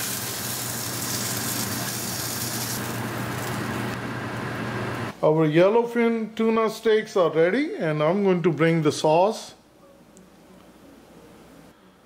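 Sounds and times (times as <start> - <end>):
fish sizzling in oil: 0.0 - 3.9.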